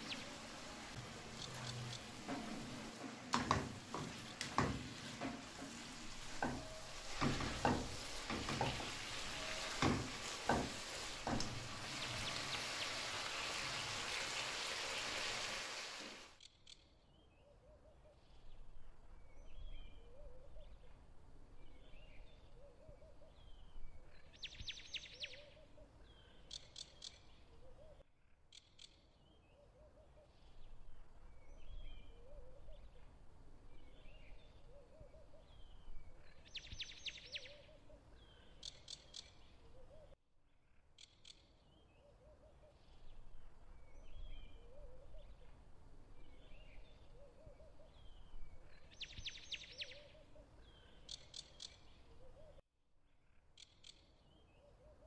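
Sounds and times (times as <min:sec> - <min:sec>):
birds chirping and calling: 0:00.0 - 0:13.6.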